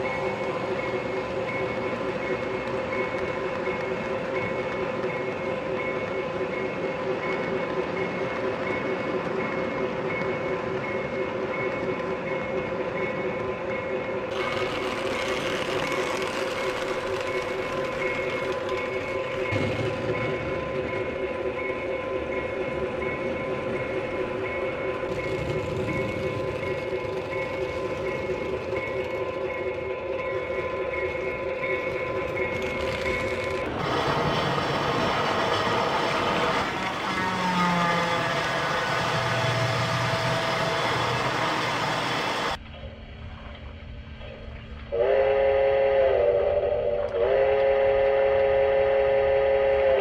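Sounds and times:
toy train motor whine: 0:14.3 - 0:18.3, 0:33.5 - 0:42.6
toy train wheels rumbling on rail: 0:14.3 - 0:42.6.

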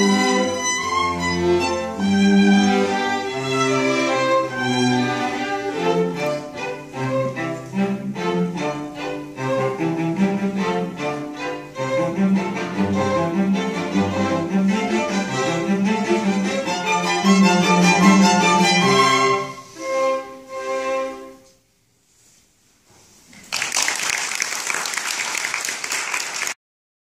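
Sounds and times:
string quartet playing: 0:00.0 - 0:21.6
audience applause: 0:23.4 - 0:26.6.

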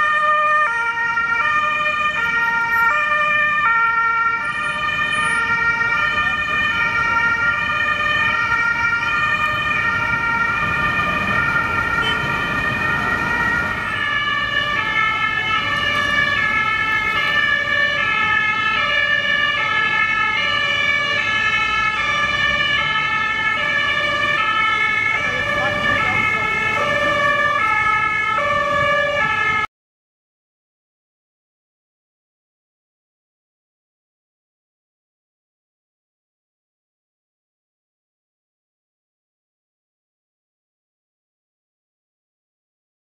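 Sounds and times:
road traffic: 0:00.0 - 0:29.7
two-tone emergency sirens: 0:00.0 - 0:29.7.

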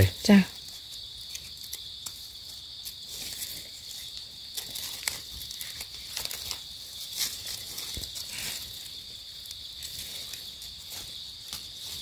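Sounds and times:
high-pitched insect chorus: 0:00.0 - 0:12.0
rustles of dry leaf litter: 0:00.0 - 0:12.0.

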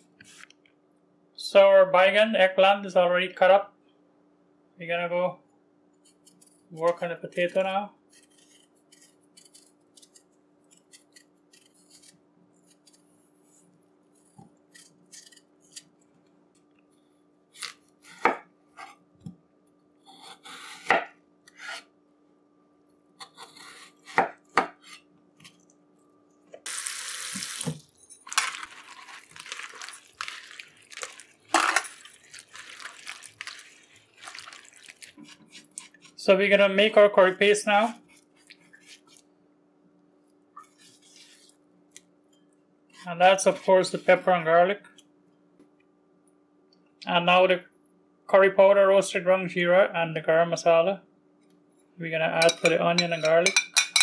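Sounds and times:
knife scraping potato peel: 0:06.0 - 0:16.0, 0:20.0 - 0:21.9, 0:23.2 - 0:25.1, 0:40.6 - 0:41.6.

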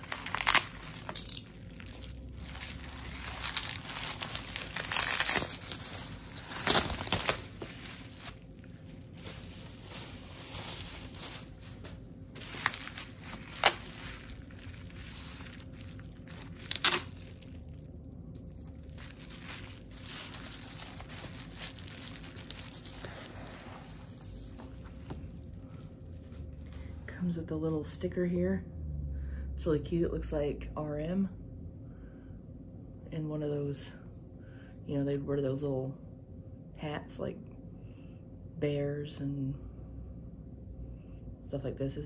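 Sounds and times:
sharp crackles: 0:00.0 - 0:08.1
packaging crinkling: 0:00.0 - 0:26.7.

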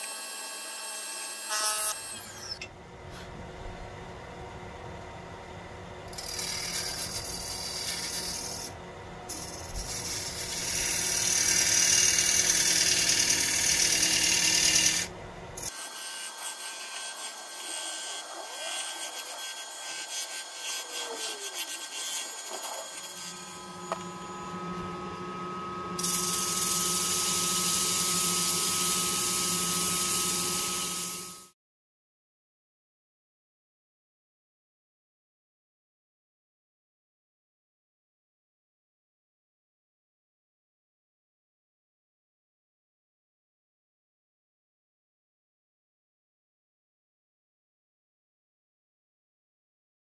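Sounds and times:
lathe motor humming: 0:02.8 - 0:15.7, 0:22.4 - 0:31.5
scraper scraping spinning wood bowl: 0:06.0 - 0:15.7, 0:16.5 - 0:31.5.

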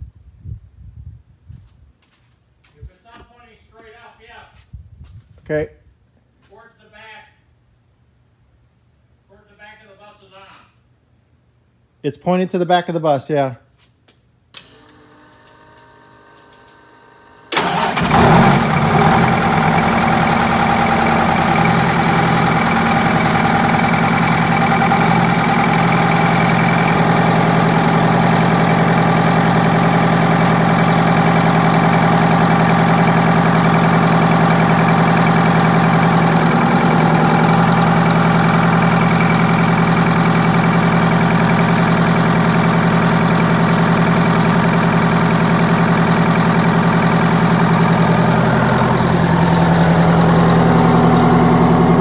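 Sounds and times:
diesel engine cranking and idling: 0:14.6 - 0:52.0.

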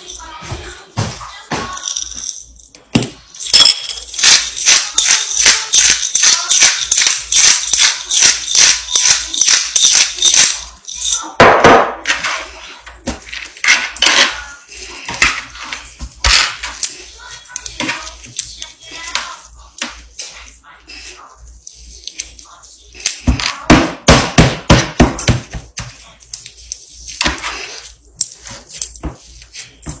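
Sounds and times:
spice shaker rattling: 0:01.7 - 0:11.4, 0:13.2 - 0:23.4.

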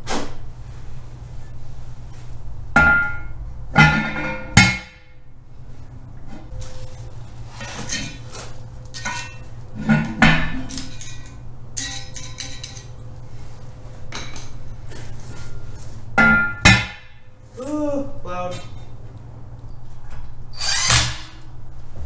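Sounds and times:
metal clanks and clinks: 0:08.9 - 0:13.0.

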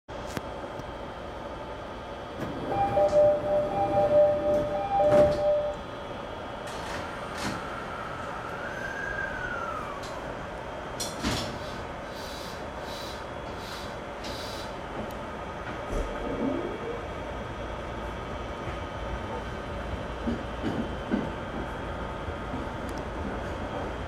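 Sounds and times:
train running noise: 0:00.9 - 0:24.0
train motor whine: 0:02.4 - 0:06.0
two-note electronic alert: 0:02.8 - 0:05.8.

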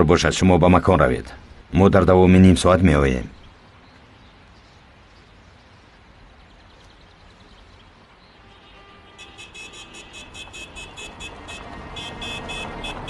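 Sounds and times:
low rumble of cars: 0:00.0 - 0:13.0
rhythmic high-pitched car horn tooting: 0:08.4 - 0:13.0.

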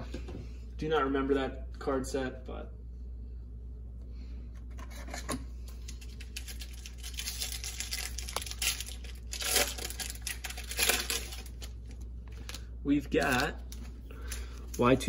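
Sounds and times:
wrapper ripping and crinkling: 0:05.9 - 0:15.0.

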